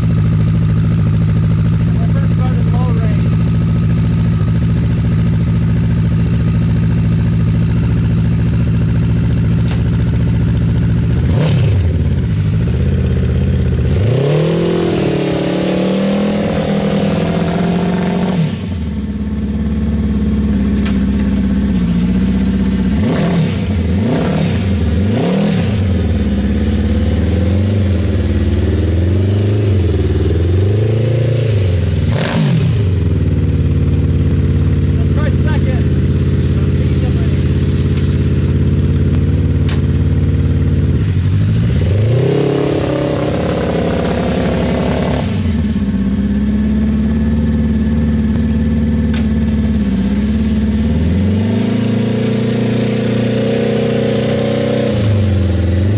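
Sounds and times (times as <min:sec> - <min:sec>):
motorcycle engine idling and revving: 0:00.0 - 0:55.9.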